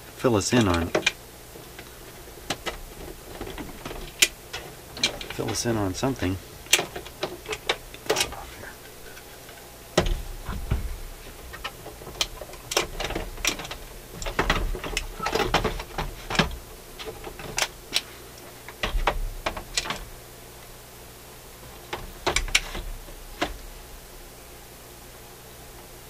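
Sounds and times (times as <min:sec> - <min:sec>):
turntable clicks and clatter: 0:00.5 - 0:08.5, 0:09.1 - 0:20.2, 0:21.6 - 0:24.0
heavy thumps: 0:00.7 - 0:09.0, 0:09.9 - 0:17.9, 0:18.8 - 0:20.2.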